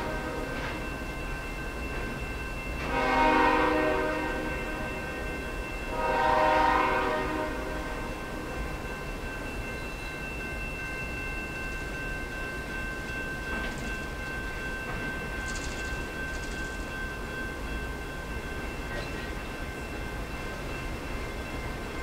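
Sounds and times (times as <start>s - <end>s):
train rumbling over bridge: 0.0s - 22.0s
high ringing tones: 7.6s - 22.0s.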